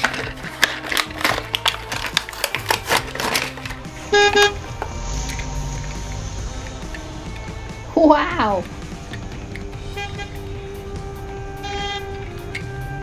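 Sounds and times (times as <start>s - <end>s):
plastic blister pack tearing: 0.0s - 3.8s
background music: 0.0s - 13.0s
car horn sound effect: 4.0s - 4.8s, 9.9s - 10.6s, 11.6s - 12.2s.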